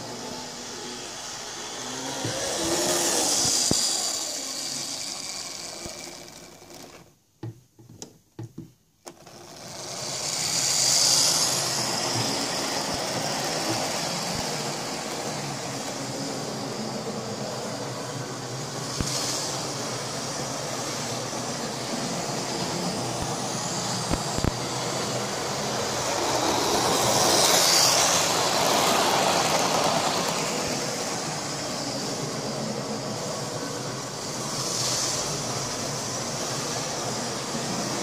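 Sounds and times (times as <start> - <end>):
model train motor whirring: 0.2 - 7.1, 9.1 - 16.1, 22.6 - 32.2
wheels on rails: 2.1 - 7.1, 25.6 - 31.3.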